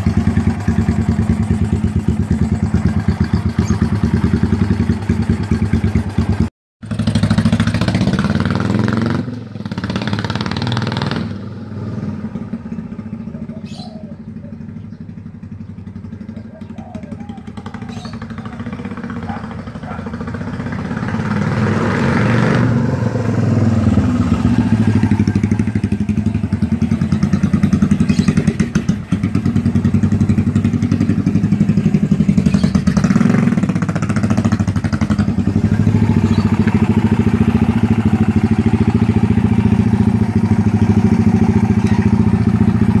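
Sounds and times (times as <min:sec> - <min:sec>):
motorcycle engine idling: 0:00.0 - 0:08.3, 0:12.3 - 0:21.2, 0:24.0 - 0:43.0.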